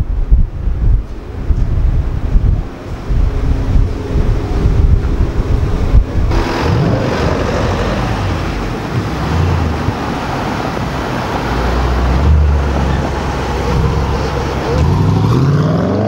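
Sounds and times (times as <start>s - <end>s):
wind buffeting microphone: 0.0s - 16.0s
engine revving and driving past: 3.3s - 16.0s.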